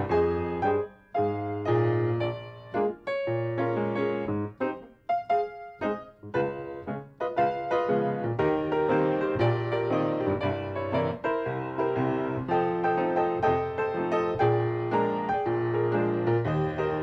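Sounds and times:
lively piano music: 0.0s - 17.0s.

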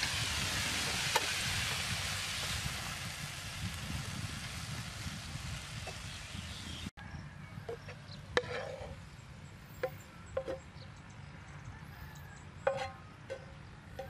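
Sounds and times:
stir-fry sizzling in a frying pan: 0.0s - 6.9s
metal spatula scraping a pan: 7.7s - 9.2s, 12.6s - 14.0s.

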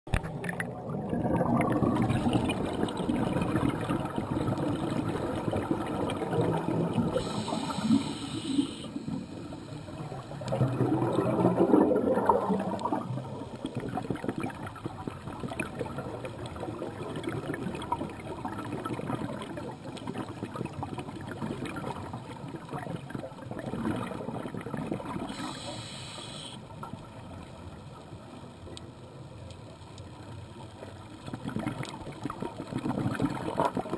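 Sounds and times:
exhaled air bubbling underwater: 0.1s - 28.8s, 30.8s - 33.9s
regulator inhalation hiss: 7.1s - 10.3s, 25.3s - 26.6s.

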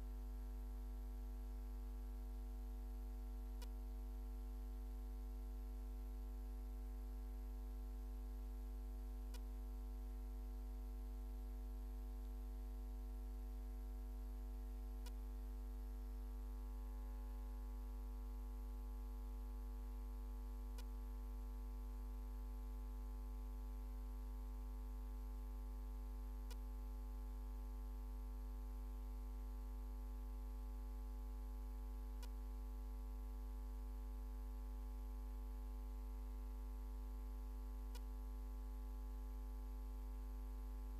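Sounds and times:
electrical mains hum: 0.0s - 40.9s
faint click: 3.6s - 3.9s, 9.3s - 9.6s, 15.0s - 15.3s, 20.7s - 21.0s, 26.4s - 26.7s, 32.2s - 32.4s, 37.8s - 38.2s.

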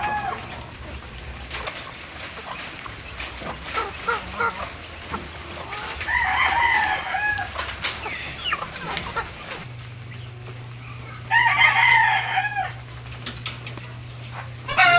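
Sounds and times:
rooster crowing: 0.0s - 0.6s, 6.0s - 7.6s, 11.2s - 12.9s, 14.7s - 14.9s
low steady hum: 0.0s - 14.9s
faint clucking: 6.8s - 11.3s.

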